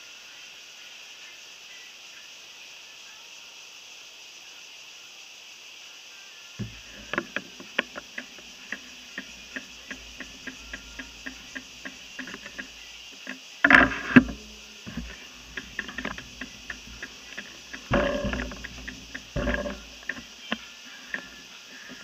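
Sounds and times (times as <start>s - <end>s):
bicycle clatter over bump: 6.6s - 22.0s
bicycle ticks and rattles: 6.6s - 22.0s.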